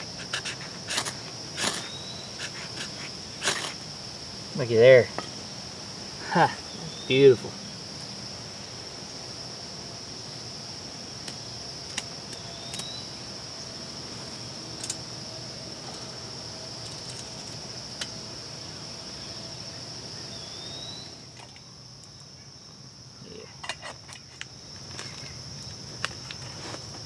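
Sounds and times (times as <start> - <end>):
insects droning: 0.0 - 27.0
rising chirp: 20.2 - 21.2.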